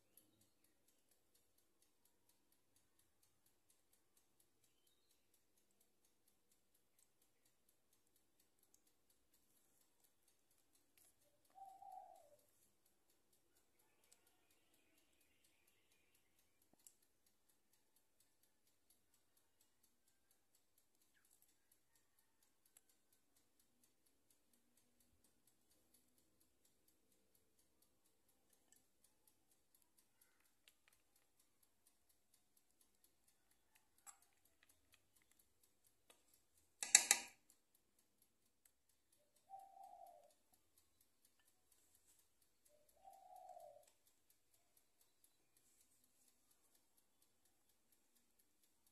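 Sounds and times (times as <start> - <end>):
faint bird call: 11.3 - 12.5, 39.4 - 40.4, 42.7 - 43.9.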